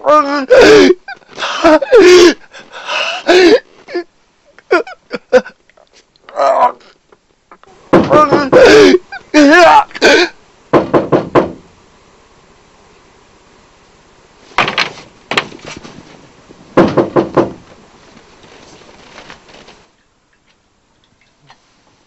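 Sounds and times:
hard knocking on a door: 7.9 - 8.8, 10.7 - 11.7, 16.8 - 17.6.

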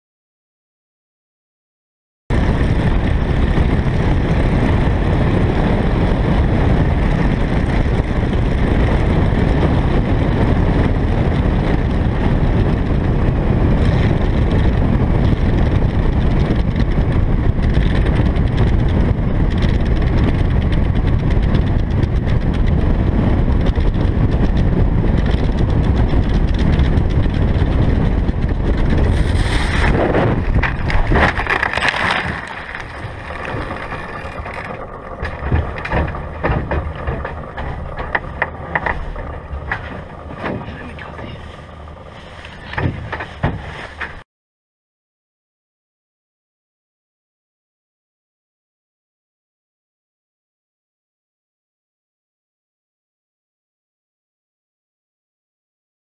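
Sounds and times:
air rushing past camera: 12.7 - 44.2
landing gear ploughing through grass: 13.6 - 44.2.

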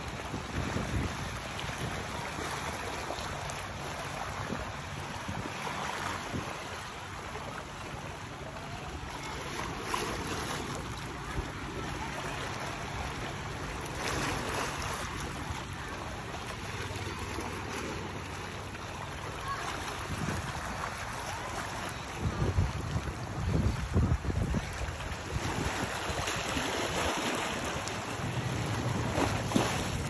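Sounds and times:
wind buffeting microphone: 0.0 - 2.8, 19.6 - 30.0
boat motor hum: 0.0 - 30.0.

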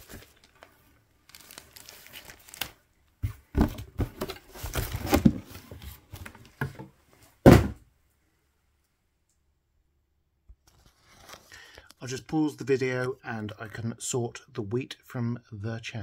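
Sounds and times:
loud paper crackle: 0.0 - 2.8
newspaper rustling and crinkling: 0.0 - 6.6, 10.7 - 11.6.

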